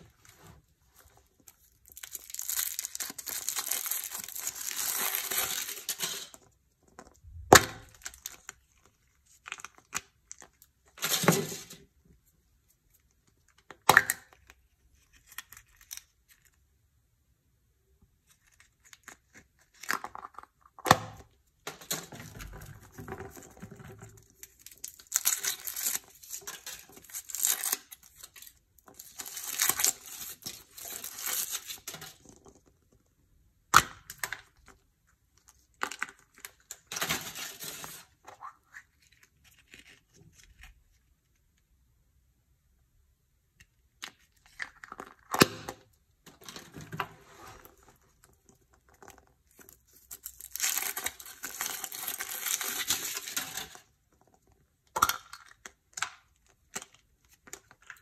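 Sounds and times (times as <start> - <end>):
foil wrapper crinkling and tearing: 1.4 - 6.3, 24.4 - 32.0, 49.5 - 53.9.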